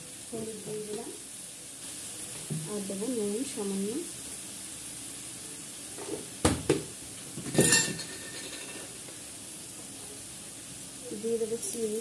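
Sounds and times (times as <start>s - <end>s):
vegetables sizzling in pan: 0.0s - 12.0s
metal utensils clinking on pan: 7.4s - 9.0s.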